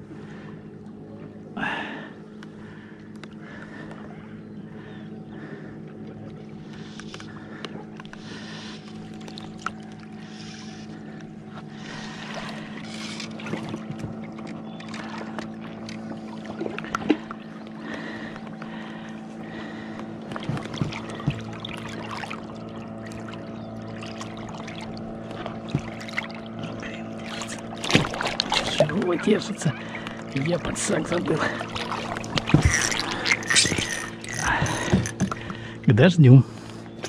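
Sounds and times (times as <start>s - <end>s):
boat engine humming: 0.0s - 37.0s
fishing gear knocks and clicks: 32.1s - 35.6s.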